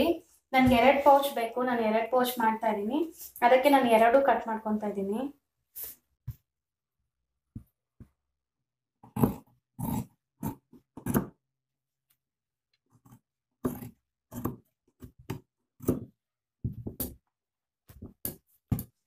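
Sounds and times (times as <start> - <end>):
scissors snipping fabric: 12.9 - 16.2.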